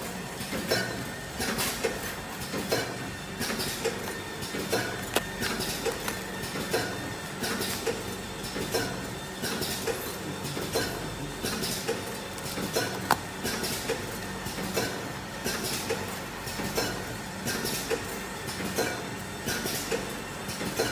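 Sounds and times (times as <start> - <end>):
machine rhythmic clatter: 0.1 - 20.9.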